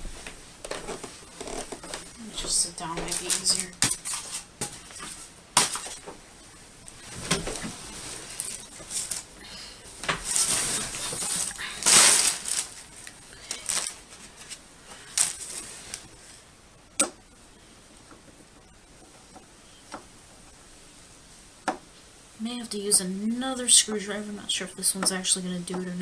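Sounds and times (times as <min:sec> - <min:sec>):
rustling and scraping: 0:00.0 - 0:06.2, 0:06.9 - 0:09.3, 0:09.9 - 0:16.3.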